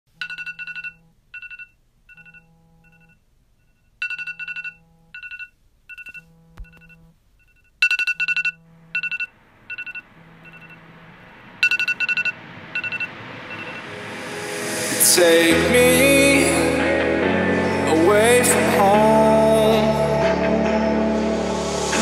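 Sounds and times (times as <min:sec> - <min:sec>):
phone alarm beeping: 0:00.2 - 0:03.2, 0:04.0 - 0:11.0, 0:11.6 - 0:13.9
low buzz: 0:08.5 - 0:22.0.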